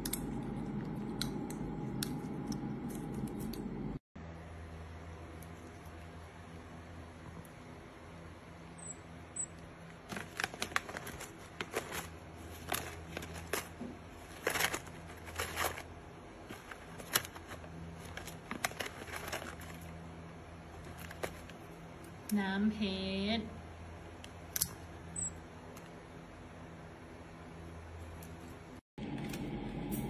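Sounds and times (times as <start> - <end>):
low steady hum: 0.0 - 30.0
paper pouch crinkling: 10.0 - 20.0.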